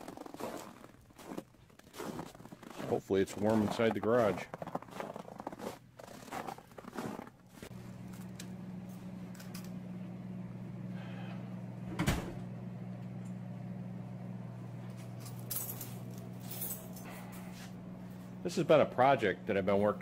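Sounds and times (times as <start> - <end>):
electrical hum of lights: 7.5 - 20.0.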